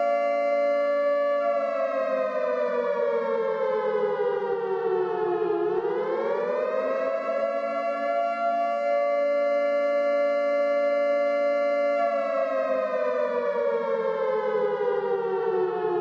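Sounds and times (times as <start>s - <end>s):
warning siren wailing: 0.0s - 16.0s.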